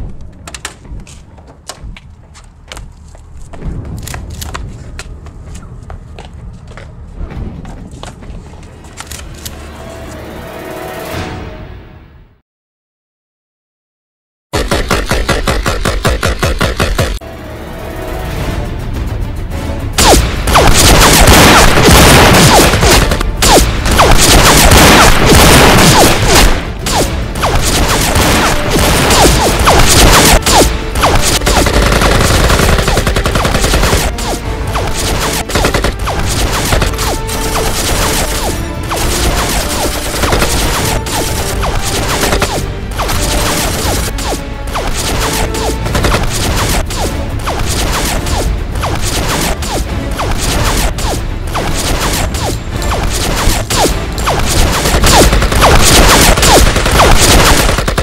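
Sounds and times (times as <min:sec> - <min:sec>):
background music: 0:05.4 - 0:12.4, 0:17.2 - 0:58.0
rapid gunfire volleys: 0:14.6 - 0:17.2, 0:20.0 - 0:58.0.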